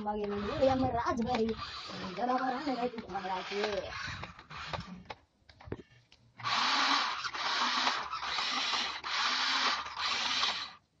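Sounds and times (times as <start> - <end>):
toy car electric motor whirring: 0.0 - 5.2, 6.4 - 10.8.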